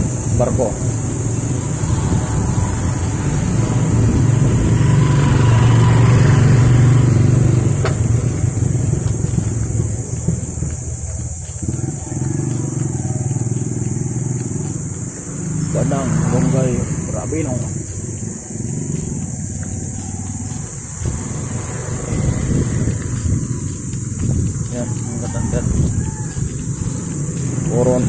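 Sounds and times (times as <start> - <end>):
motor scooter engine running: 0.0 - 28.0.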